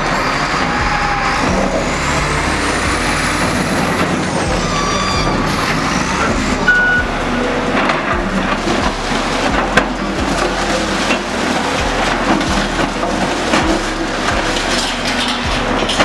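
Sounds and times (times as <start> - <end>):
wheel loader diesel engine: 0.0 - 16.0
short high tone: 6.6 - 7.1.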